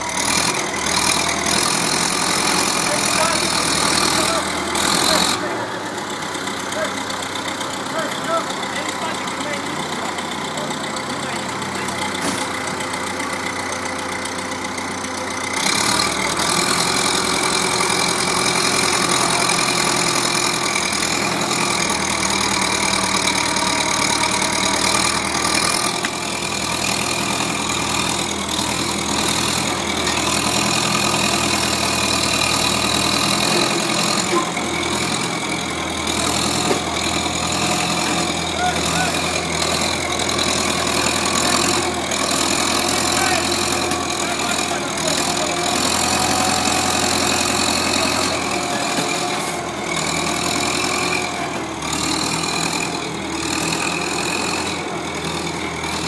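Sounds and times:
tractor engine idling: 0.0s - 56.0s.

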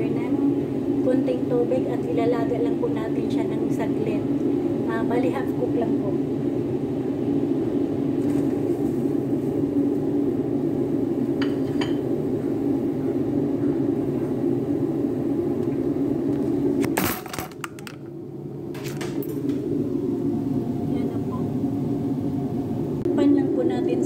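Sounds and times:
dish clinking against pot: 11.4s - 12.0s
clicks and knocks: 16.9s - 18.1s
steady low rumble: 17.6s - 24.0s.

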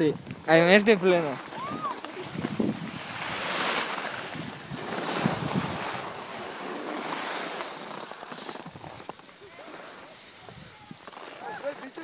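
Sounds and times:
wind rushing over microphone: 1.5s - 6.2s.

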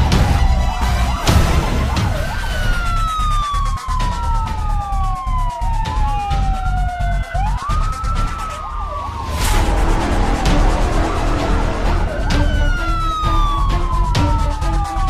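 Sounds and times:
fire truck siren wailing: 0.0s - 15.0s
steady low rumble: 9.2s - 14.8s.

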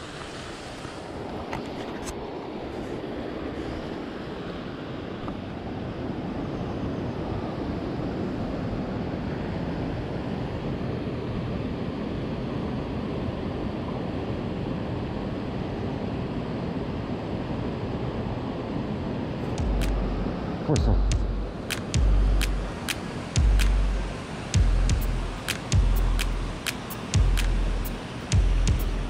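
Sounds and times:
river water rushing: 21.3s - 29.0s.

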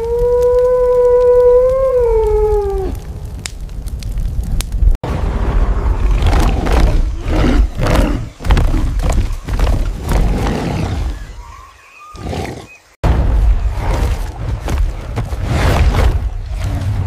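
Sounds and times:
ape-like roars and growls: 5.1s - 9.1s.

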